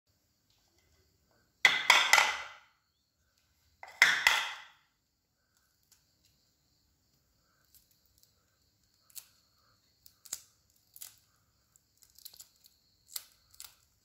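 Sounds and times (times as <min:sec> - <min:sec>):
eggs tapping on ceramic bowl: 0:01.7 - 0:02.6, 0:03.8 - 0:04.7.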